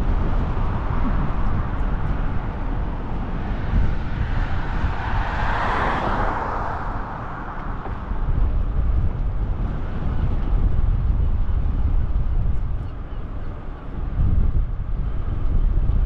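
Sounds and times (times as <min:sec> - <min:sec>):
wind buffeting a camera: 0:00.0 - 0:16.0
car passing: 0:00.6 - 0:10.2.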